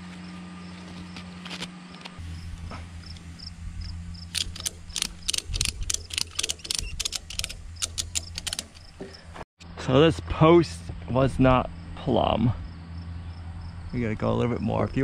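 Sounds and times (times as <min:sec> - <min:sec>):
ratchet strap clicking: 0:04.3 - 0:09.0.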